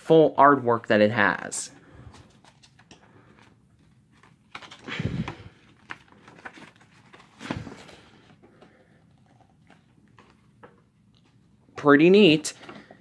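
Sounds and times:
paper rustling and crinkling: 1.9 - 10.5
paper sheet flapping: 4.1 - 8.2.

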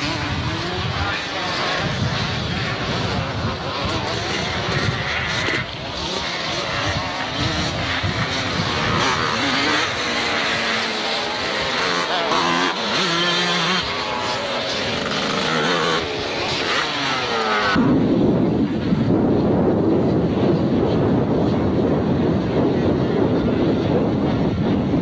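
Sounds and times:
dull rushing noise: 0.0 - 25.0
motocross bikes revving past: 0.0 - 25.0.

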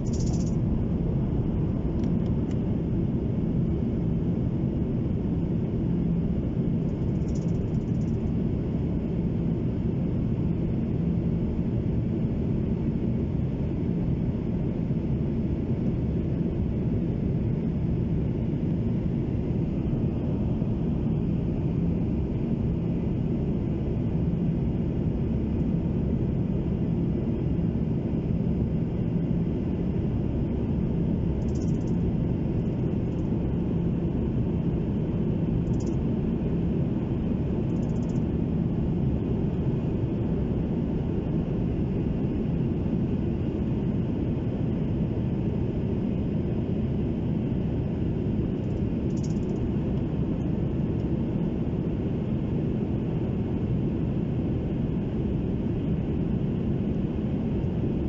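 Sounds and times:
faint steady hum: 0.0 - 58.0
jet engines rumbling: 16.5 - 27.2.

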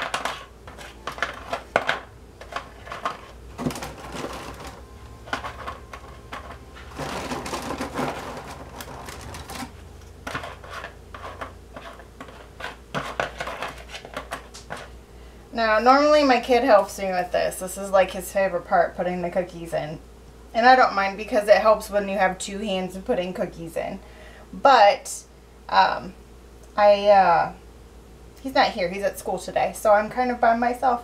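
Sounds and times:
cookies clicking into plastic bowl: 0.0 - 11.5
hand rustling in cardboard box: 5.5 - 9.8.

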